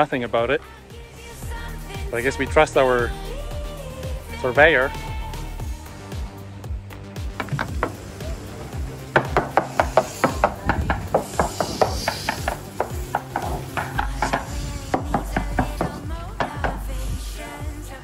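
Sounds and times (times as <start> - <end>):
background music: 0.0 - 18.0
hammer tapping on hull: 7.4 - 16.9.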